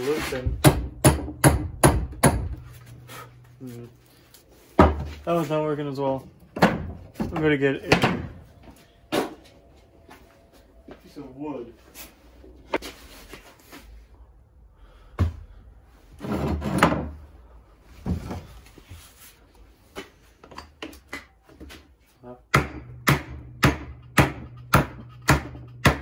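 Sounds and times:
hammer knocking on wood: 0.5 - 2.7, 4.8 - 5.2, 22.5 - 26.0.

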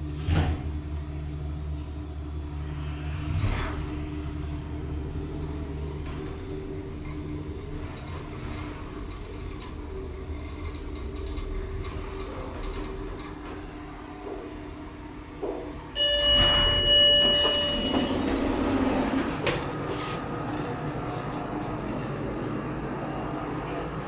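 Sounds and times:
elevator car hum: 0.0 - 24.0
elevator doors rumbling open: 3.1 - 24.0
electronic tone: 16.0 - 19.0.

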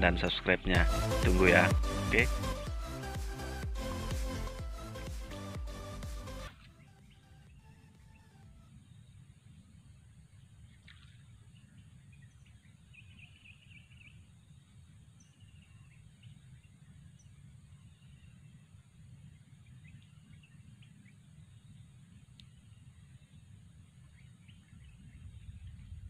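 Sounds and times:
steady low rumble: 0.0 - 6.5, 13.9 - 26.0
faint bird chirps: 6.6 - 26.0
bird trill: 10.9 - 21.9.

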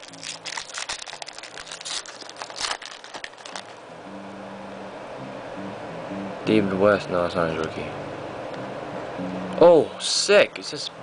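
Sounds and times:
foil wrapper crinkling and tearing: 0.0 - 3.8
faint low hum: 0.0 - 11.0.

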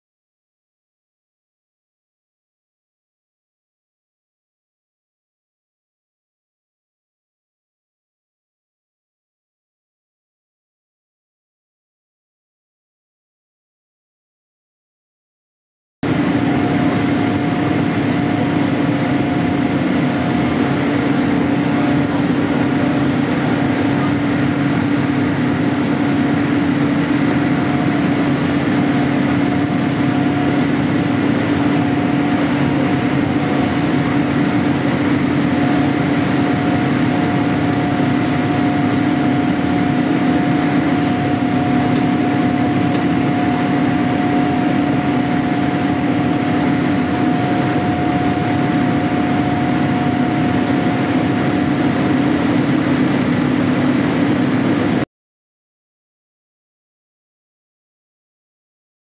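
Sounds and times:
airplane cabin air rush: 16.0 - 55.0.

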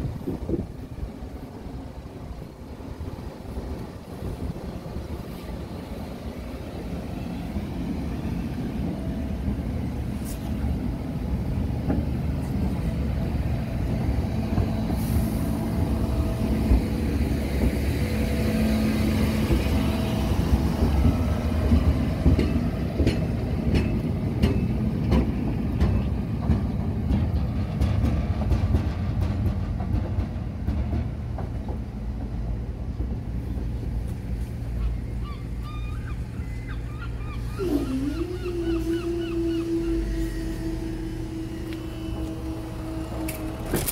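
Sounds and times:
wheels clicking over rail joints: 20.6 - 34.4, 41.6 - 43.9
diesel engine rumble: 25.2 - 43.9.

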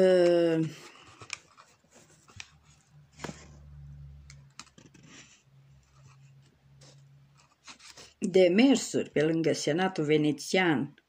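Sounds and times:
faint clicks and small taps: 1.0 - 3.4.

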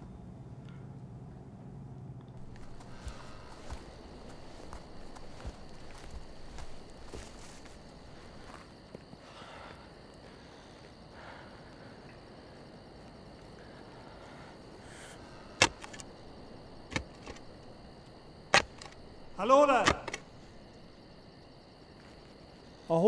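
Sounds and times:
soft rustles: 2.4 - 8.7
shovel blade striking ground: 15.6 - 16.1, 16.9 - 17.4, 18.5 - 20.3.

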